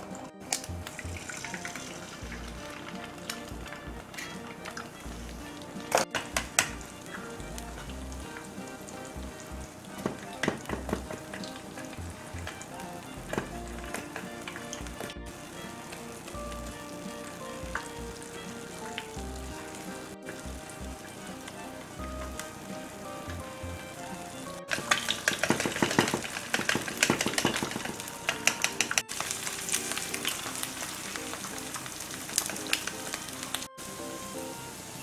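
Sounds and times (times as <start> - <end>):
eggs sizzling in a pan: 0.5 - 35.0.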